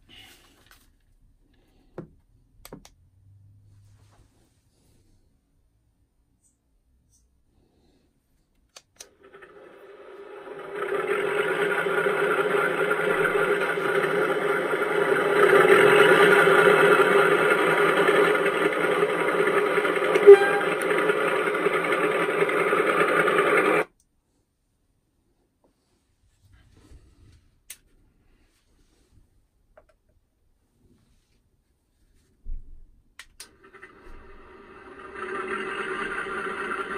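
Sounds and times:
model diesel engine sound idling: 10.2s - 23.8s.

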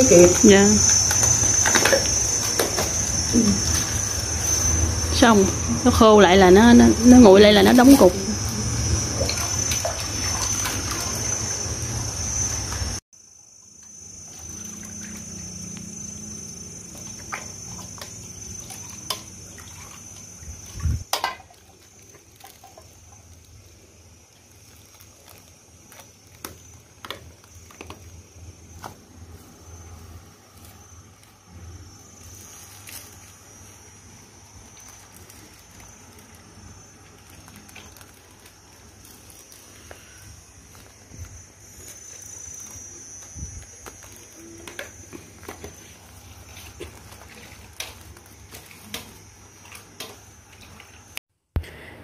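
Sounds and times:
high-pitched whine: 0.0s - 21.1s
liquid being poured: 8.7s - 11.7s
plastic bags crinkling: 21.2s - 23.7s, 24.3s - 28.2s, 34.6s - 41.1s, 43.4s - 49.3s.

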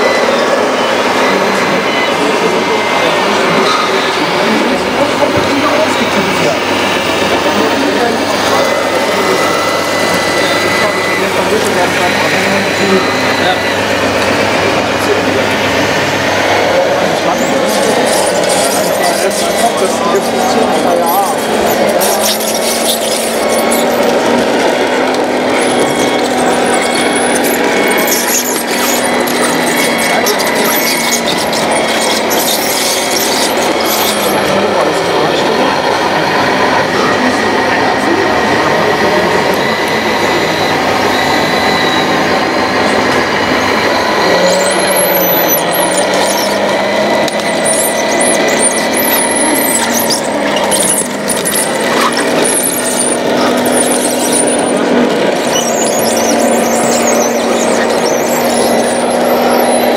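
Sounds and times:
constant hum: 0.0s - 59.9s
model bulldozer motor whirring: 0.0s - 59.9s
thin high squeaks: 17.3s - 34.5s, 43.4s - 59.9s.

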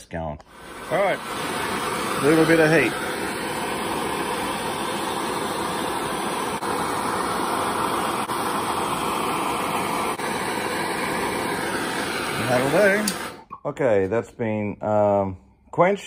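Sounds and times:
gas burner flame roaring: 0.5s - 13.5s.

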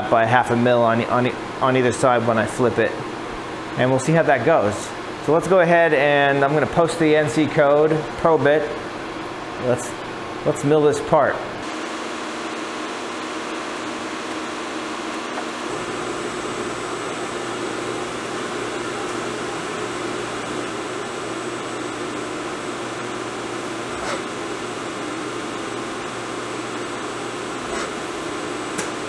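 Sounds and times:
milling machine whirring: 11.6s - 29.0s.

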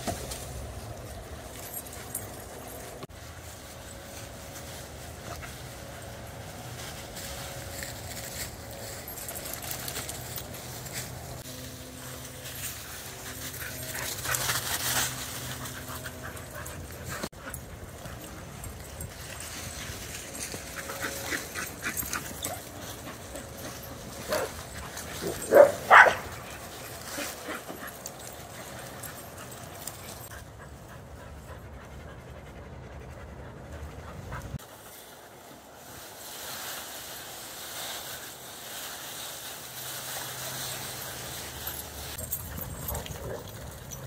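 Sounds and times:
dogs panting: 8.5s - 35.4s, 41.6s - 44.0s
dog barks: 25.2s - 26.3s.

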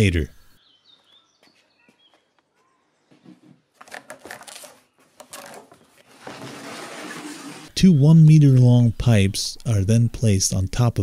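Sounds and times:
faint bird chirps: 0.2s - 3.5s.

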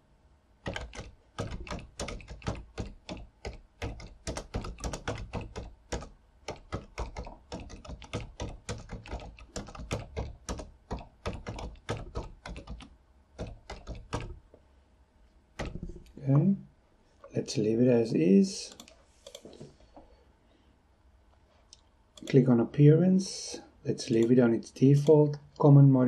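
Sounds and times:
typing on keyboard: 0.6s - 14.4s, 15.6s - 16.1s.

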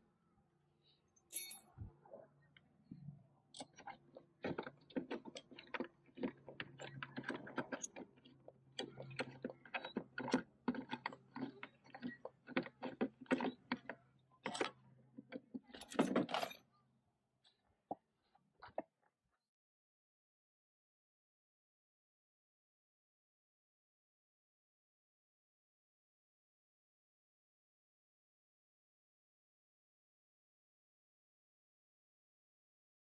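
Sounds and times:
turnbuckles clicking: 1.3s - 1.6s, 15.7s - 16.6s
chain clattering: 1.3s - 1.8s, 15.7s - 16.6s.

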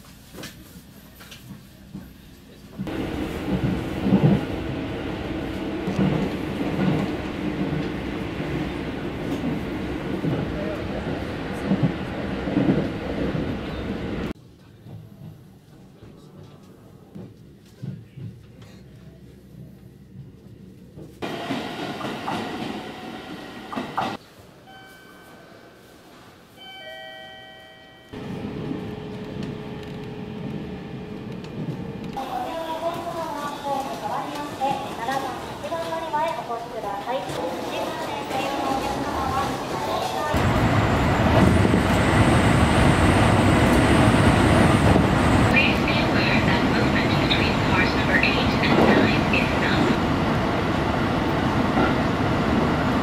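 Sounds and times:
train wheels rumbling on rail: 0.0s - 24.2s, 28.2s - 53.0s
chime-like tones: 24.7s - 26.0s, 26.6s - 28.2s.

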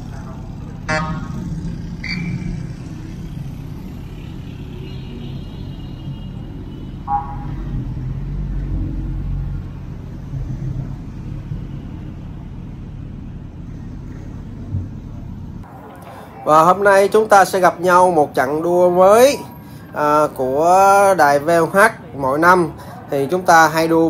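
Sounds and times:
motorcycle engine and road rumble: 0.0s - 15.9s
horn toot: 0.9s - 2.6s, 4.6s - 7.9s.

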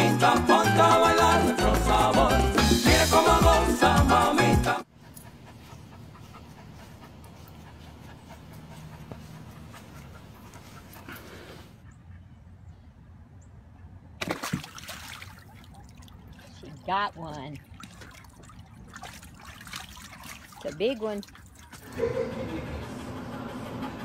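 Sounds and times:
dog panting hard: 4.9s - 12.1s, 21.7s - 24.0s.

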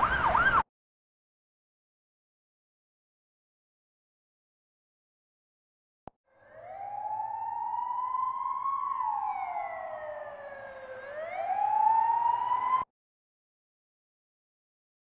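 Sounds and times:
ambulance siren wailing: 0.0s - 0.7s, 6.3s - 12.9s.

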